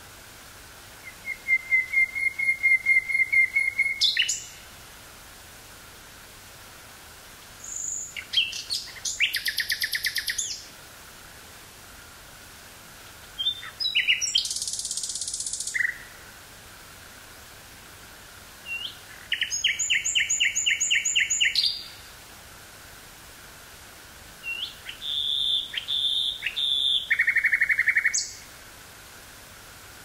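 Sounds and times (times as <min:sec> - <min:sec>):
nightingale singing: 0:01.0 - 0:04.6, 0:07.6 - 0:10.7, 0:13.4 - 0:16.4, 0:18.6 - 0:22.1, 0:24.4 - 0:28.5.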